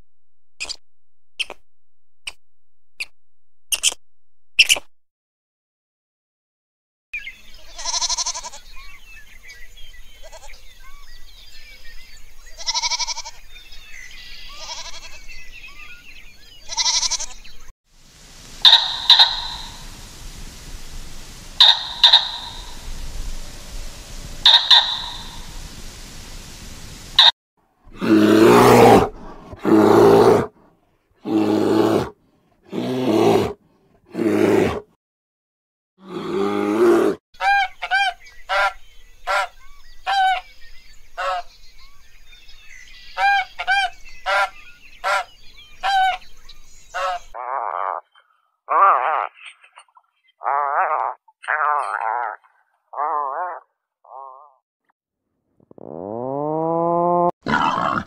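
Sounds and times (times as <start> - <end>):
farm animal bleating: 7.6 - 8.7, 10.1 - 10.6, 12.6 - 13.5, 14.4 - 15.3, 16.6 - 17.5
faint chirping: 14.0 - 27.3
large animal calling: 18.5 - 25.6, 55.7 - 58.0.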